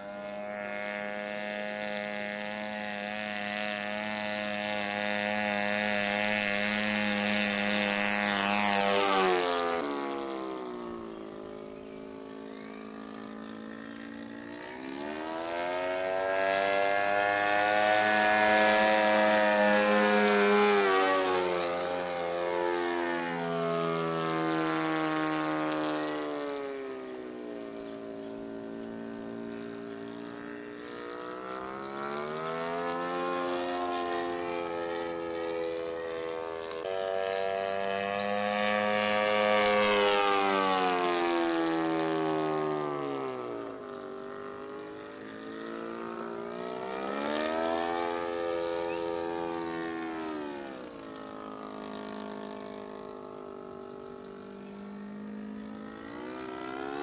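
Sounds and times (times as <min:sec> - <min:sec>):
propeller airplane engine buzzing: 0:00.0 - 0:57.0.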